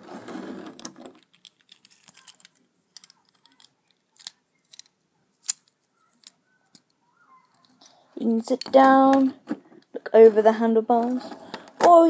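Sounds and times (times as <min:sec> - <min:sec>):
plastic toy bricks clicking: 0:00.8 - 0:07.8.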